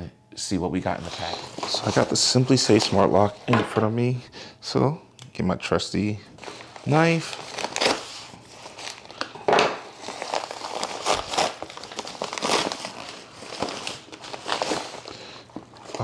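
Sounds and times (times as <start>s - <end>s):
padded mailer crinkling: 1.0s - 3.5s, 6.4s - 16.0s.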